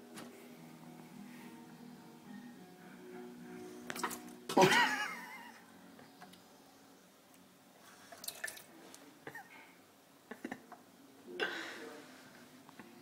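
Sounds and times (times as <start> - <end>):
tap water splashing into sink: 8.2 - 8.7.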